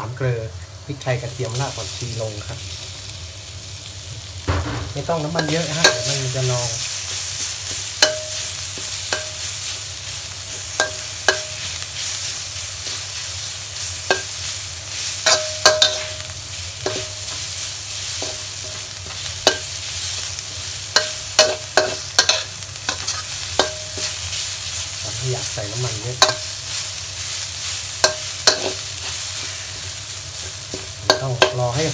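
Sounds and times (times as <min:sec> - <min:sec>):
food sizzling in a wok: 0:00.0 - 0:31.9
spatula knocking and scraping pan: 0:21.0 - 0:24.1, 0:28.0 - 0:28.8.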